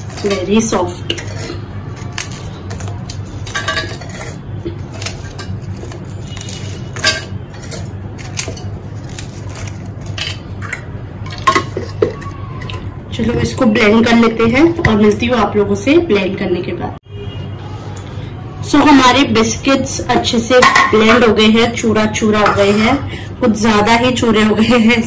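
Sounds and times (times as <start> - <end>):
biscuits cracking: 1.5 - 12.3.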